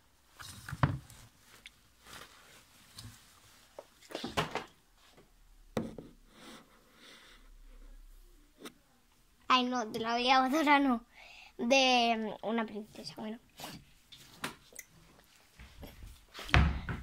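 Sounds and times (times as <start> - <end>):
dresses rustling: 0.3 - 5.3.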